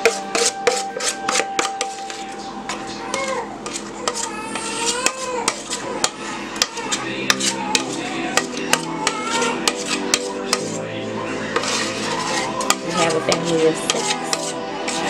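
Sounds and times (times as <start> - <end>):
utensil clinking in metal bowl: 0.0 - 10.8, 11.5 - 15.0
background music: 6.7 - 15.0.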